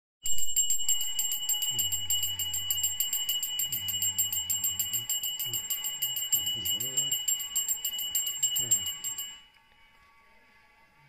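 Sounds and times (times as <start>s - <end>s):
small brass hand bell ringing: 0.2s - 9.5s
man chanting in monotone: 3.6s - 7.2s.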